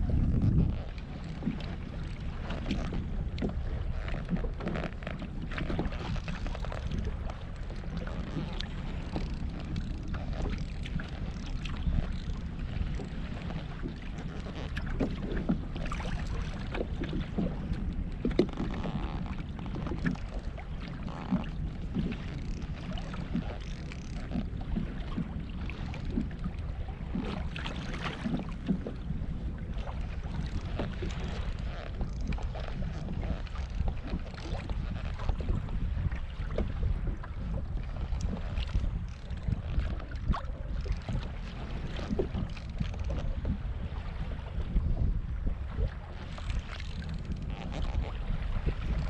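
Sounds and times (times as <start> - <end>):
wind rumble on microphone: 0.0 - 49.0.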